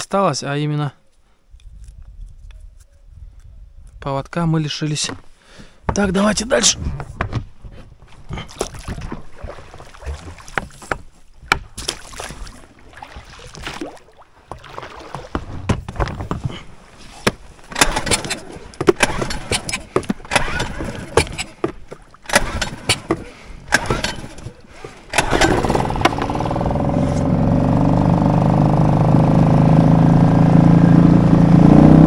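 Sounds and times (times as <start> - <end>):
water sloshing against boat hull: 5.9 - 27.3
knocks and clatter: 17.2 - 24.5.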